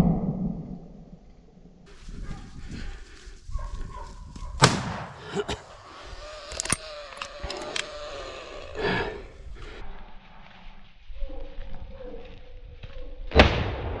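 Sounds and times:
gunshot with echo: 4.6s - 5.2s.

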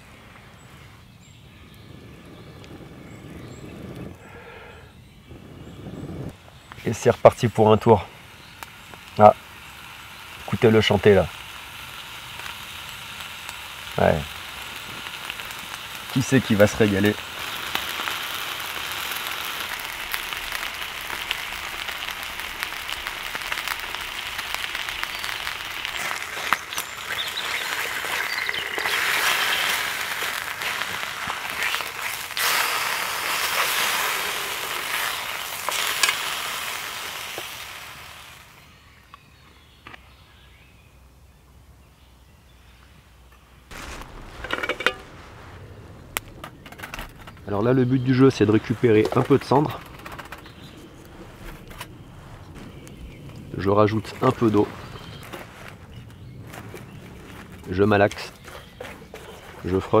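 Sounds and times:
meat sizzling in a frying pan: 6.9s - 38.6s
short clatters: 43.7s - 47.8s.

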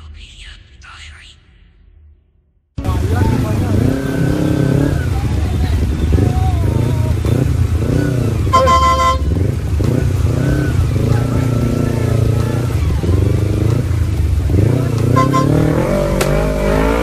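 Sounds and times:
motorcycle and car engines: 2.8s - 17.0s
horn toot: 8.5s - 10.0s, 15.0s - 17.0s.

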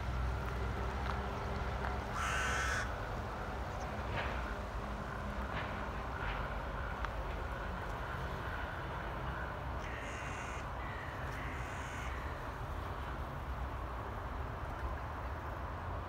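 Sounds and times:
crows cawing: 2.1s - 3.0s, 9.8s - 12.6s.

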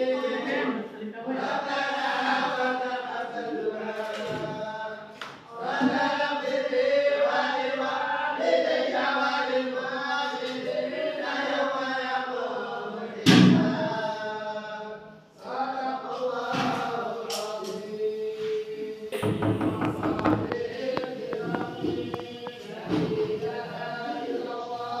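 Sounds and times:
group chanting in unison: 0.0s - 25.0s
thump: 19.2s - 23.1s.

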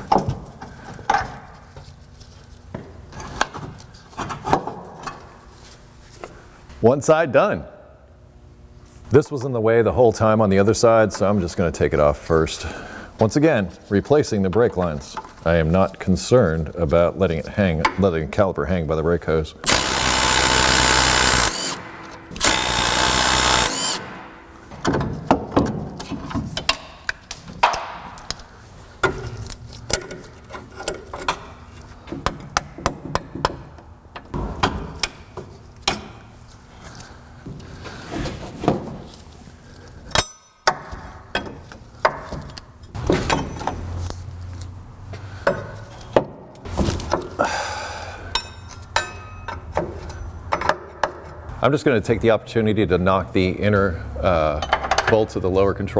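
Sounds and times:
power tool running: 19.6s - 24.6s.

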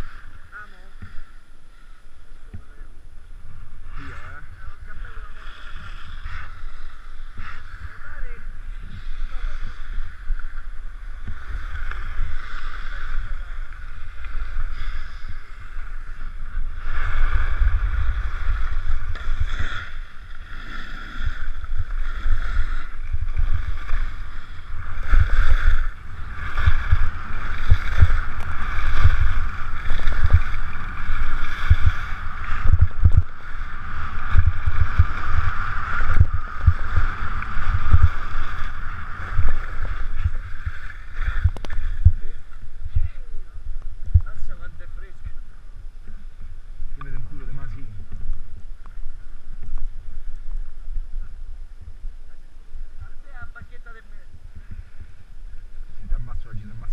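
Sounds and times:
wind buffeting microphone: 21.4s - 45.5s.

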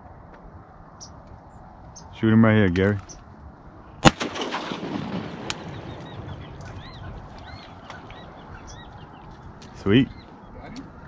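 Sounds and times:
shotgun blast echoing: 4.0s - 6.1s.

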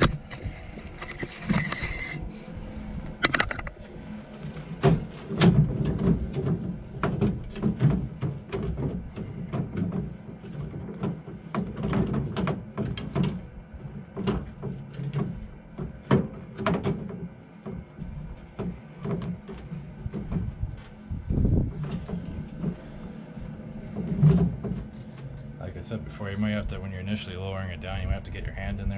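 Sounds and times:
winch metallic clicks and clunks: 0.0s - 2.2s, 3.0s - 21.0s
low rumble: 0.0s - 10.2s, 19.6s - 28.9s.

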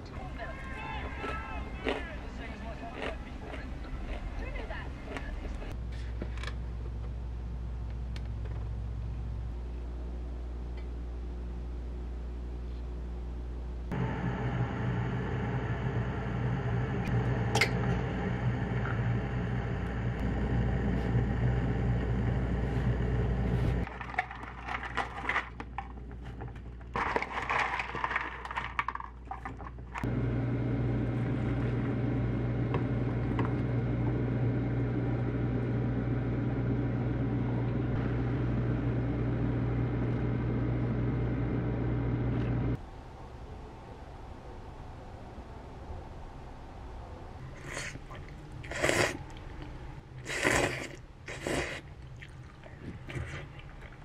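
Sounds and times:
kitchen hum with electrical buzz: 0.0s - 42.8s.

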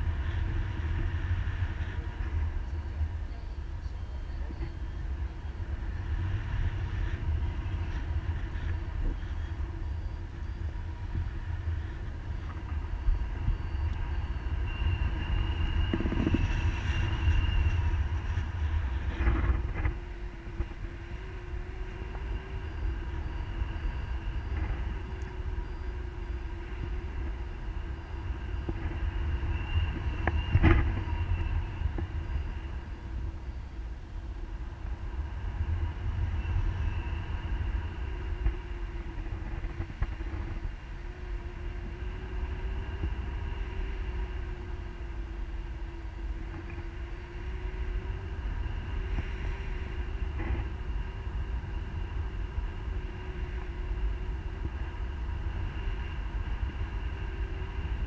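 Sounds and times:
wind rushing over microphone: 0.0s - 58.0s.

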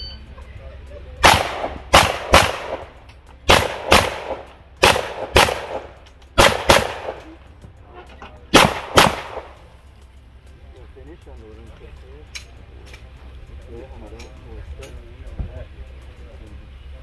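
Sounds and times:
pistol shots with echo: 1.2s - 7.4s, 8.5s - 9.6s.

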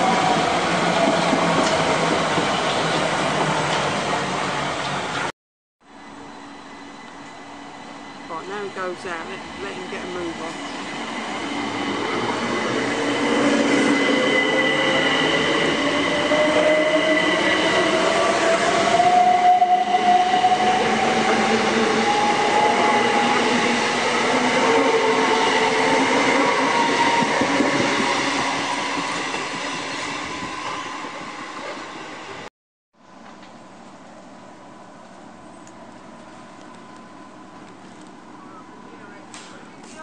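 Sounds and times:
train wheels rumbling on rails: 0.0s - 5.3s, 8.2s - 32.4s
electric train whine: 5.9s - 40.0s.

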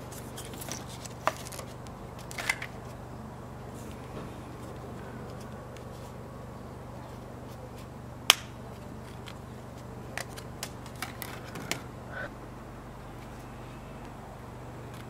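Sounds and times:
card and paper rustling: 0.0s - 3.0s
low steady hum: 0.0s - 15.0s.

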